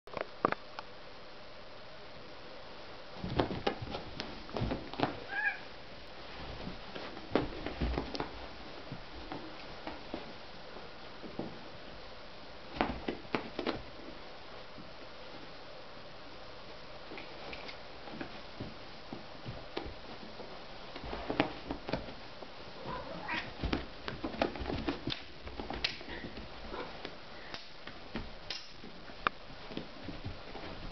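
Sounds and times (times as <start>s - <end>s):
knocks and rustles on carpet: 3.2s - 5.4s, 6.2s - 11.8s, 12.6s - 15.5s, 17.1s - 27.2s, 27.8s - 30.9s
kitten meowing: 5.3s - 5.7s.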